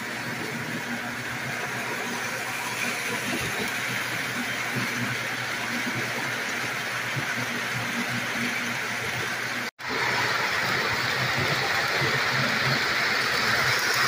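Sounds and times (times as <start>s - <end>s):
model train motor hum: 9.8s - 14.0s.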